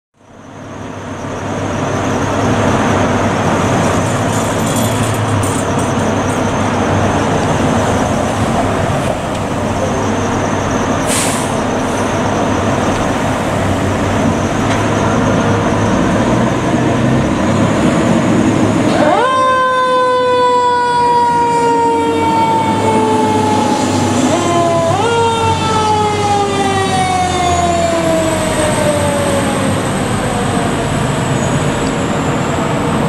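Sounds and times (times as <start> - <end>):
diesel truck engines running: 0.2 - 20.0, 20.7 - 33.0
air brakes hissing: 10.9 - 12.4.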